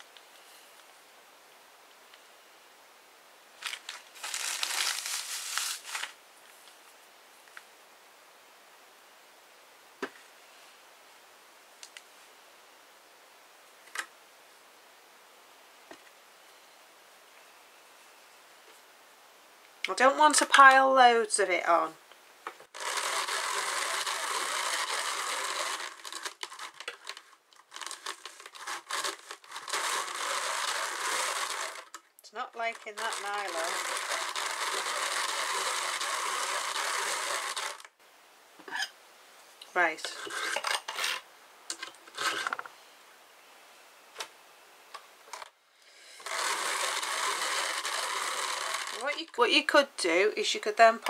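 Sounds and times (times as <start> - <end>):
drum carder teeth brushing fibre: 22.8 - 32.0, 32.6 - 37.8, 46.2 - 49.4.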